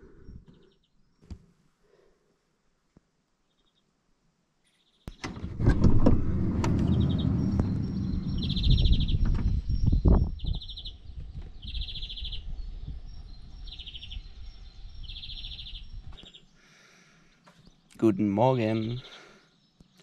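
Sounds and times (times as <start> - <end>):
loud low rumble: 5.4 - 16.0.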